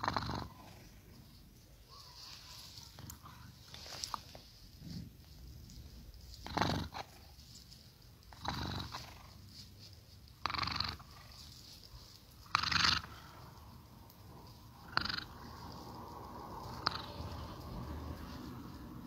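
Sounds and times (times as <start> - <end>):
cat snoring: 0.0 - 1.0, 6.4 - 7.2, 8.3 - 9.4, 10.4 - 11.4, 12.4 - 13.5, 14.7 - 15.7, 16.4 - 17.7.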